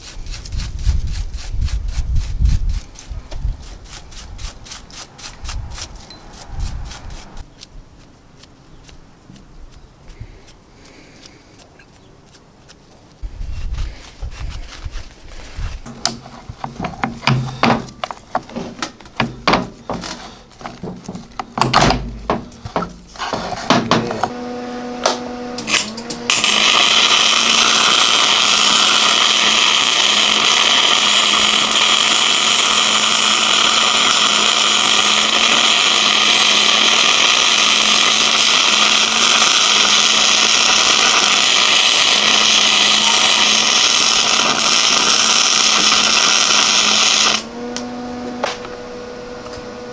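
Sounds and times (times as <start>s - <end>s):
arc welder hissing: 0.0s - 7.4s, 22.0s - 47.6s.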